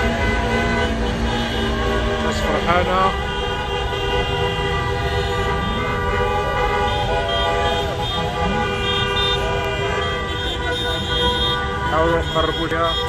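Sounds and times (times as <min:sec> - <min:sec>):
car horns blaring: 0:00.0 - 0:13.0
traffic noise: 0:00.0 - 0:13.0
people shouting: 0:06.3 - 0:11.4.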